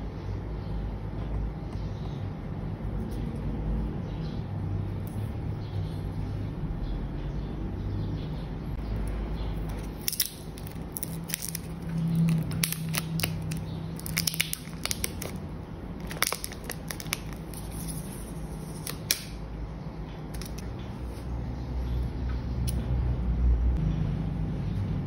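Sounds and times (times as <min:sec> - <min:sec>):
plastic wrap crinkling: 0:09.8 - 0:19.3.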